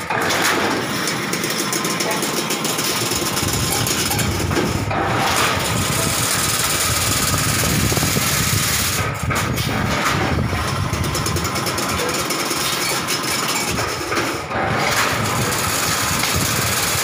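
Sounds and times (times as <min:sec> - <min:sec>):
low motor hum: 0:00.0 - 0:12.6
fencing machine rattling: 0:00.0 - 0:17.0.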